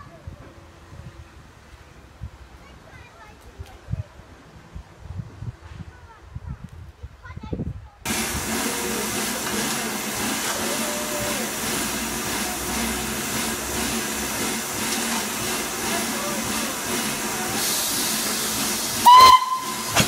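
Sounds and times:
steam hissing from locomotive: 0:08.1 - 0:20.0.

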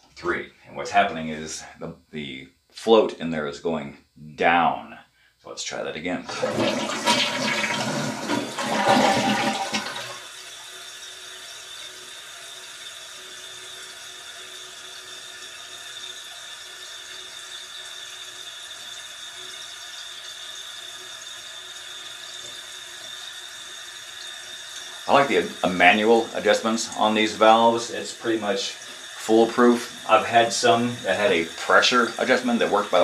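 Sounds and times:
toilet flushing: 0:06.2 - 0:33.0
tank refilling with hiss: 0:06.3 - 0:33.0
thin high whine: 0:15.1 - 0:33.0.

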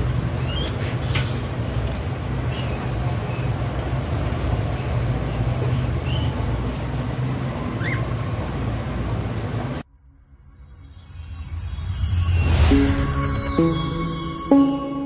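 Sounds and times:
faint budgerigar chirps: 0:07.8 - 0:08.1.

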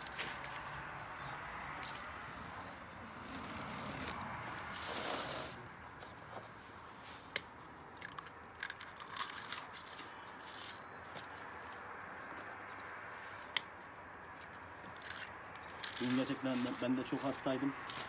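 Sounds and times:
eggshells cracking: 0:08.0 - 0:10.2.

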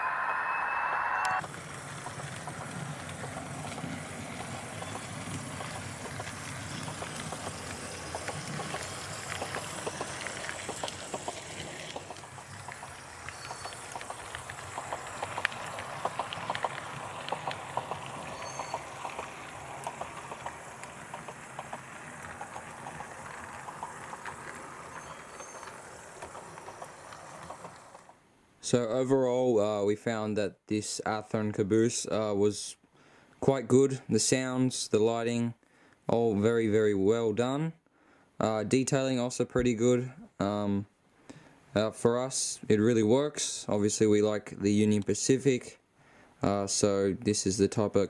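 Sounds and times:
model train rolling on track: 0:00.0 - 0:28.8
wheels clicking over rails: 0:01.2 - 0:28.2.

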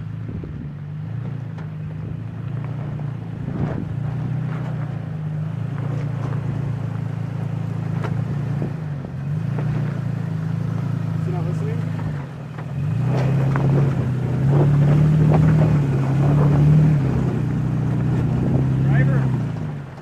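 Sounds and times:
truck engine droning at low revs: 0:00.0 - 0:20.0
knocks and clunks over rocks: 0:00.4 - 0:07.1, 0:07.7 - 0:20.0.

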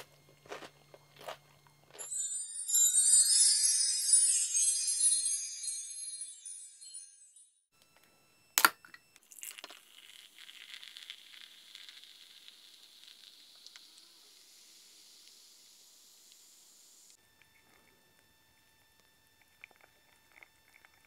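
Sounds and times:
cola pouring into glass: 0:09.2 - 0:14.0, 0:19.4 - 0:21.0
fizz of carbonation: 0:09.2 - 0:17.2.

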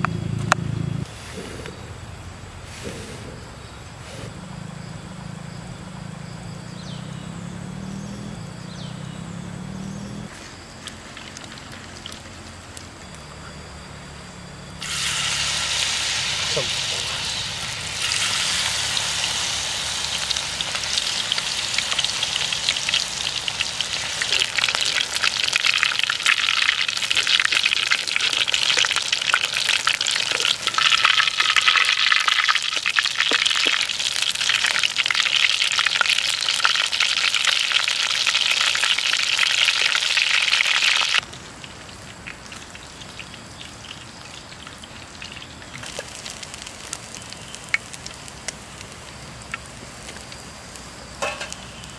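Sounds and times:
batter sizzling in hot oil: 0:10.6 - 0:13.0, 0:14.8 - 0:51.9.

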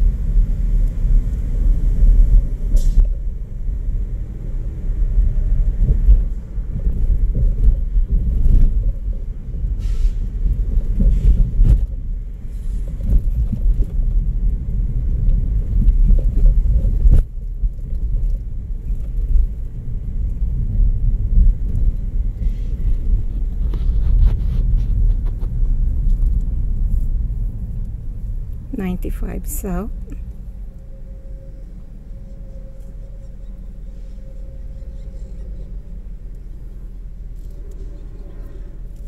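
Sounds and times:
car road and wind noise: 0:00.0 - 0:39.0.

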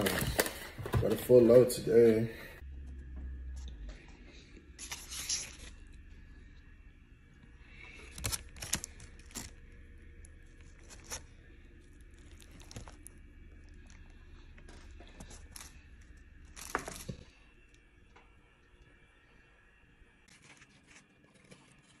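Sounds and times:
foil wrappers crinkling: 0:00.0 - 0:01.5, 0:04.8 - 0:05.8, 0:07.7 - 0:17.4.

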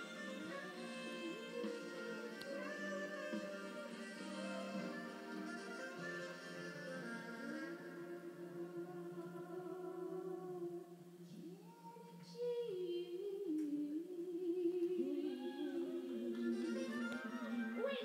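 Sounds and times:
man and woman singing: 0:11.6 - 0:18.0.

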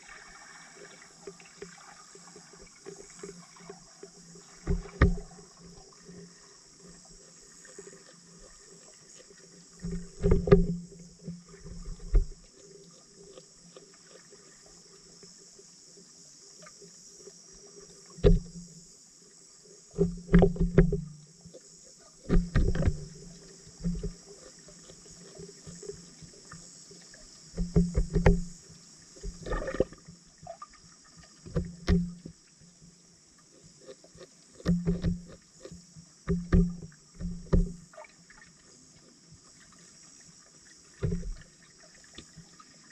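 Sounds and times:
underwater hiss: 0:00.0 - 0:12.0
dull knocks and thumps: 0:04.6 - 0:05.3, 0:09.8 - 0:11.0, 0:18.2 - 0:18.7, 0:20.0 - 0:21.2, 0:22.3 - 0:24.2, 0:27.6 - 0:28.6, 0:31.5 - 0:32.3, 0:34.6 - 0:35.4, 0:36.3 - 0:37.9, 0:41.0 - 0:41.4.

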